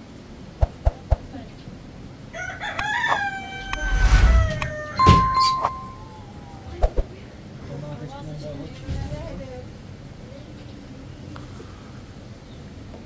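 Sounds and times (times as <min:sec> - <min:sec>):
rooster crowing: 0:02.3 - 0:06.6.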